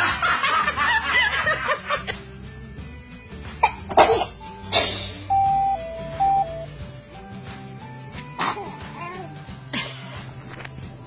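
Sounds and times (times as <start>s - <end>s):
light background music: 0.0s - 11.0s
baby sneezing: 3.6s - 5.2s, 8.2s - 9.3s.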